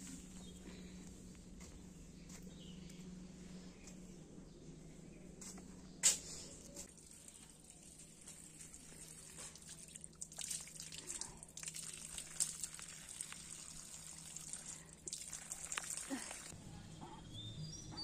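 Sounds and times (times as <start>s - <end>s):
water from hose splashing on paving: 6.9s - 16.5s.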